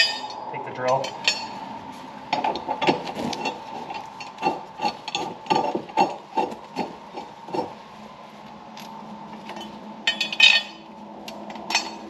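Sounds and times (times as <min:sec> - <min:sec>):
metal clinks and knocks: 0:00.0 - 0:01.6, 0:09.4 - 0:12.0.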